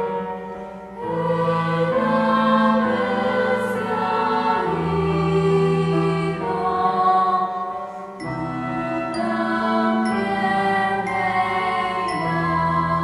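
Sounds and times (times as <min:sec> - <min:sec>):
choir singing held chords: 0:00.0 - 0:13.0.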